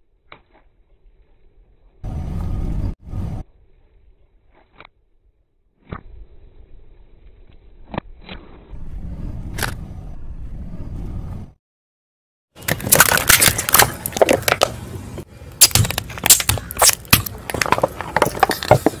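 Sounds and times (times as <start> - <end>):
low rumble of tyre rolling: 0.8 - 4.5, 6.0 - 11.6
plastic tubes cracking under tyre: 12.6 - 14.8, 15.6 - 19.0.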